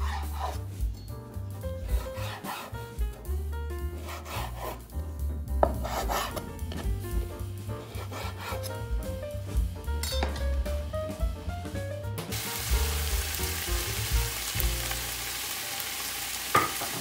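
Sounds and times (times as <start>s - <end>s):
knife slicing on cutting board: 0.0s - 0.7s, 1.8s - 2.8s, 4.0s - 4.9s, 5.6s - 6.9s, 7.8s - 8.8s
background music: 0.0s - 17.0s.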